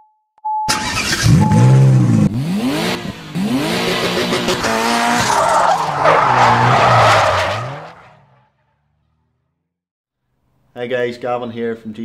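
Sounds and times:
car engine revving: 0.7 - 8.6.

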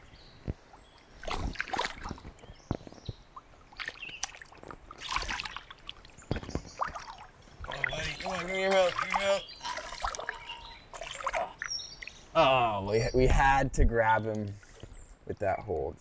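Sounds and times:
fish thrashing in shallow water: 1.0 - 2.4, 3.4 - 12.2.

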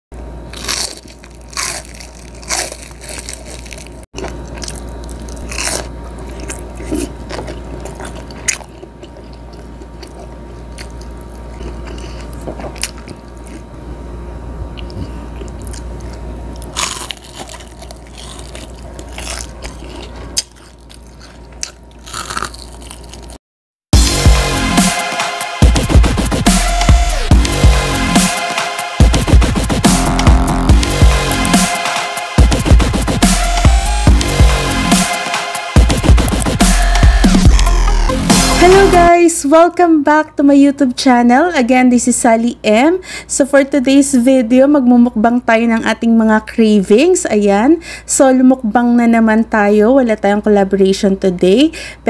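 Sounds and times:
crunchy biting and chewing: 0.2 - 14.0, 14.6 - 23.4, 32.4 - 38.5
electronic intro music: 24.0 - 39.1.

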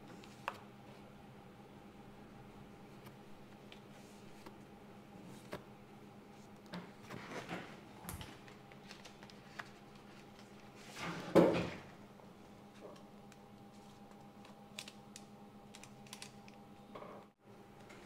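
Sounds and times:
faint hum: 0.0 - 18.0
plastic film and tools clicking: 14.2 - 16.6.

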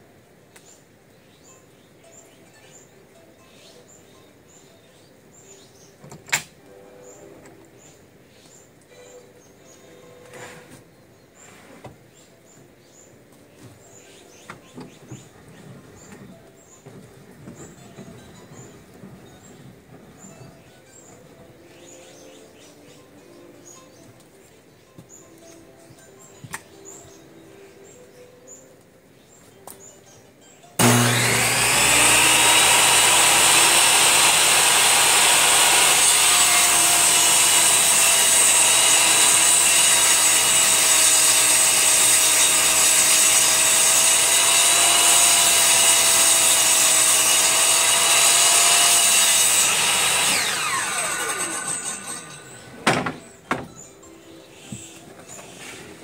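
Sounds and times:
table saw cutting plywood: 30.8 - 53.3.

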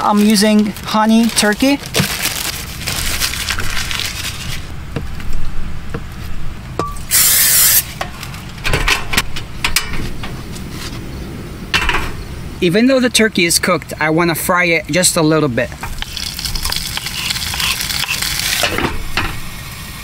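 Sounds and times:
rustling: 0.0 - 6.6
aerosol oil spray hiss: 7.1 - 7.9.

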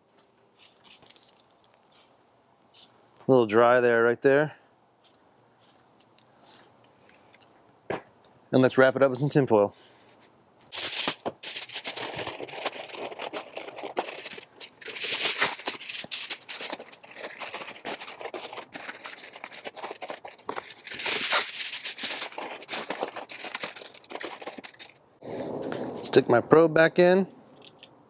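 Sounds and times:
aluminium foil crinkling: 0.5 - 3.0, 10.7 - 25.0.

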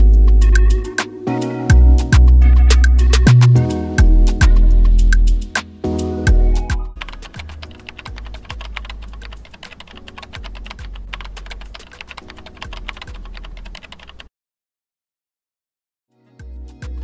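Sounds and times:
low bass music: 0.0 - 1.0, 1.7 - 9.4, 10.4 - 11.8, 16.4 - 17.0
rapid keyboard typing clicks: 7.0 - 14.3.

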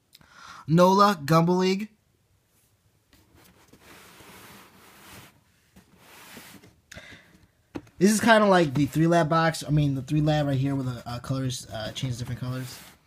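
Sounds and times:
hand rubbing cardboard box: 3.2 - 6.8, 11.9 - 13.0.

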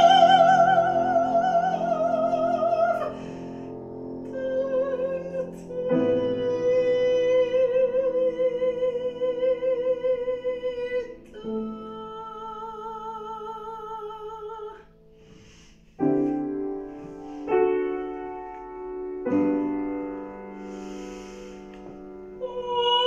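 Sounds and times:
soprano singing with vibrato: 0.0 - 3.4, 4.2 - 14.9, 22.3 - 23.0
soft piano accompaniment: 0.0 - 23.0.

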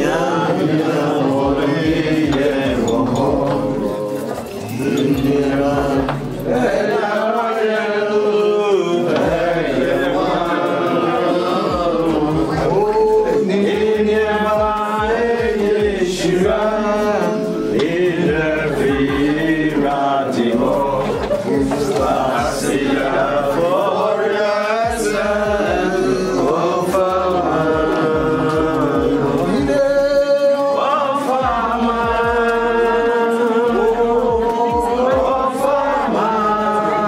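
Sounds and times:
men singing a worship song: 0.0 - 37.0.

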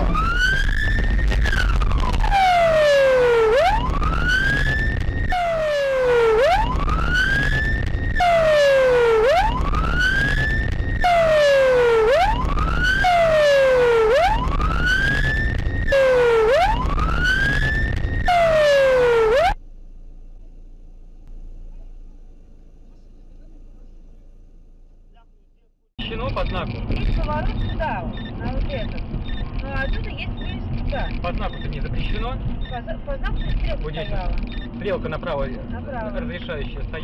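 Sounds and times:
low rumble: 0.0 - 2.9, 3.5 - 13.4, 14.3 - 18.6
electronic siren wailing: 0.0 - 19.6.

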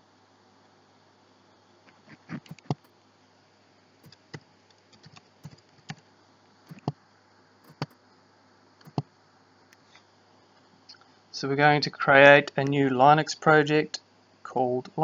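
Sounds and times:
faint steady hum: 0.0 - 15.0
keyboard and mouse clicks: 2.3 - 2.9, 6.7 - 7.0, 7.6 - 8.0, 8.8 - 9.1.

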